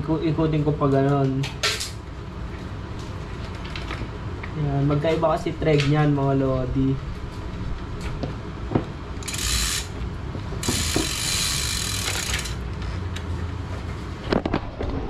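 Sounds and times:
wrench clicking on pedal: 0:09.2 - 0:10.0, 0:10.6 - 0:12.6
bicycle freewheel ratcheting: 0:09.2 - 0:12.7.

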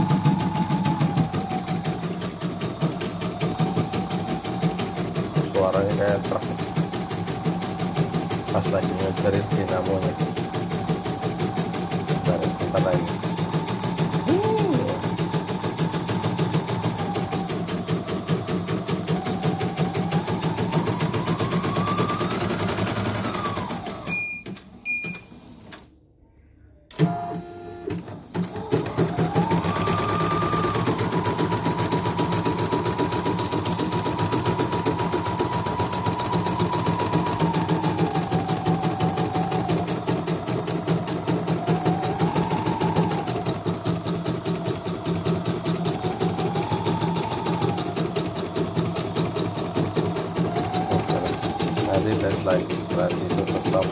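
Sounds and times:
motor whine: 0:00.0 - 0:24.0, 0:34.6 - 0:53.9
short beeps: 0:24.1 - 0:25.3.

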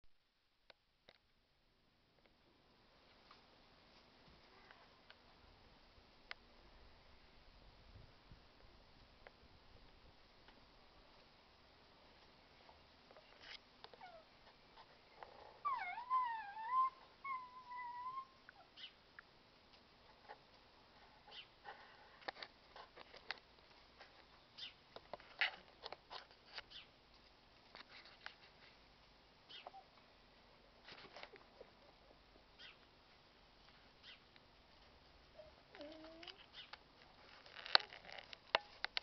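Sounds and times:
faint clicks and rustles: 0:12.0 - 0:15.7, 0:18.5 - 0:39.0
puppy whining: 0:14.0 - 0:14.3, 0:15.2 - 0:18.8, 0:35.4 - 0:36.6.

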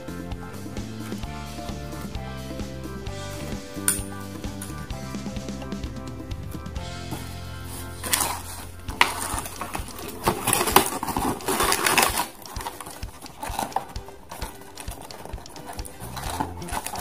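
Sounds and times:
cardboard packaging rustling: 0:07.1 - 0:17.0
plastic toys clicking and knocking: 0:08.0 - 0:17.0.

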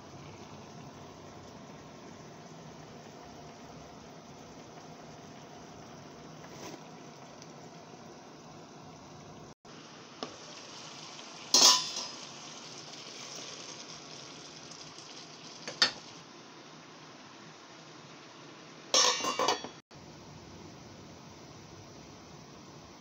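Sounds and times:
food simmering in a pan: 0:00.0 - 0:23.0
dishware clattering against a pan: 0:11.5 - 0:12.2, 0:15.7 - 0:16.0, 0:18.9 - 0:19.8.

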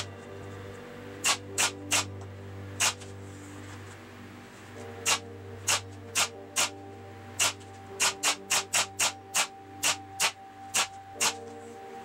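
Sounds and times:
steady low hum: 0:00.0 - 0:12.0
nail gun firing: 0:01.2 - 0:02.1, 0:02.8 - 0:03.0, 0:05.0 - 0:06.7, 0:07.4 - 0:11.4.

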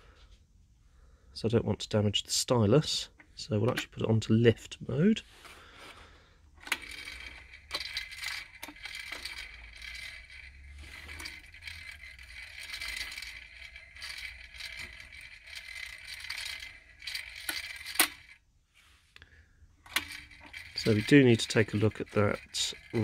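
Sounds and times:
turntable motor rattle: 0:06.5 - 0:18.4, 0:19.8 - 0:23.0
sharp mechanical clicks: 0:06.6 - 0:18.4, 0:19.8 - 0:23.0.

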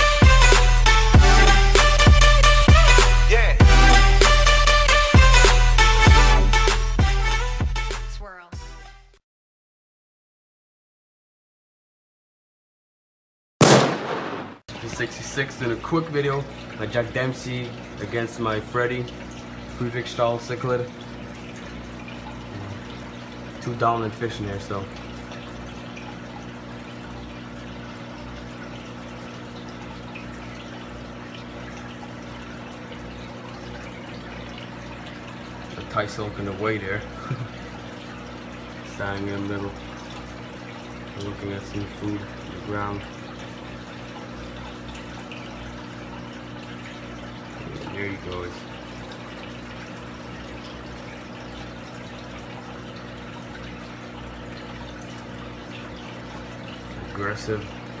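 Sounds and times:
aquarium filter hum: 0:14.7 - 0:58.0
trickling splashing water: 0:14.7 - 0:58.0
low motor hum: 0:21.0 - 0:23.8.

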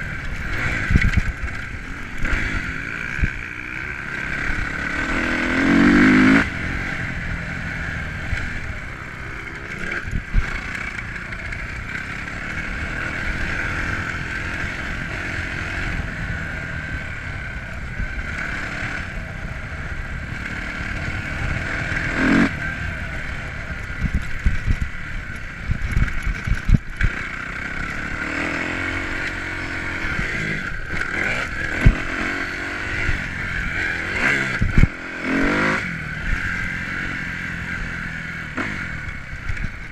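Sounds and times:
motocross engine revving: 0:00.0 - 0:17.4, 0:18.0 - 0:25.0, 0:25.9 - 0:39.9.

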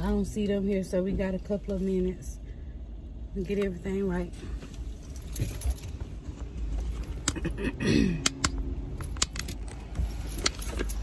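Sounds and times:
handling knocks and rustling: 0:04.9 - 0:07.2, 0:08.9 - 0:11.0
keys jangling: 0:05.0 - 0:06.3, 0:08.9 - 0:11.0.

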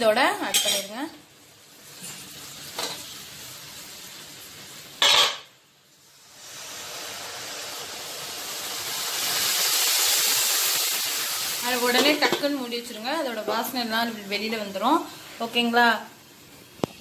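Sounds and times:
oil sizzling in a pan: 0:00.0 - 0:17.0
liquid hissing in hot oil: 0:05.8 - 0:13.1.

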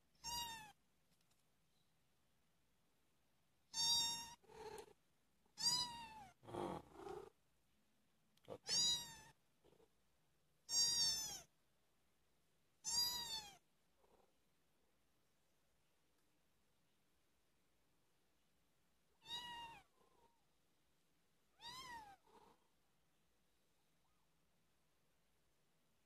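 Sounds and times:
kittens meowing: 0:03.7 - 0:04.8, 0:05.6 - 0:07.2, 0:08.5 - 0:09.4, 0:10.7 - 0:11.5, 0:21.6 - 0:22.5
soft low kitten mews: 0:21.5 - 0:22.7.

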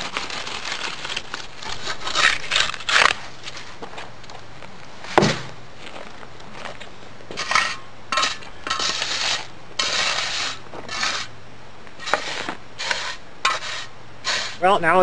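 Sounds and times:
shovel scraping wet concrete: 0:00.0 - 0:03.8, 0:07.4 - 0:11.3, 0:12.0 - 0:14.7
sharp knock: 0:05.2 - 0:05.5.

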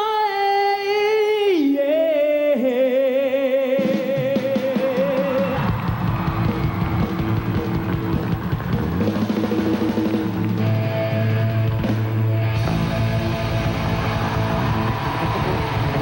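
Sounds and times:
drum kit: 0:03.8 - 0:16.0
electric guitars: 0:03.8 - 0:16.0.

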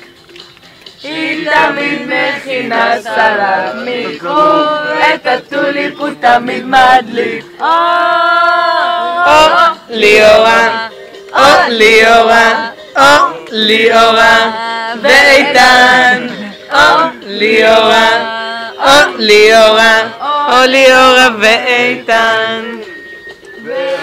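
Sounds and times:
group of people singing: 0:01.0 - 0:23.0, 0:23.6 - 0:24.0.

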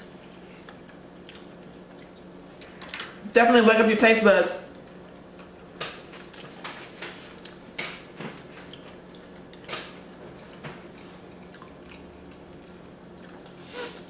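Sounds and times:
chewing with lip smacks: 0:00.0 - 0:03.2, 0:04.7 - 0:14.0.

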